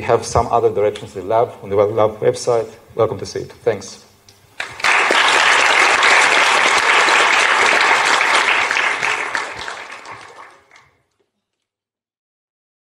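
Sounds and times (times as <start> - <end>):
audience applauding: 4.6 - 11.0.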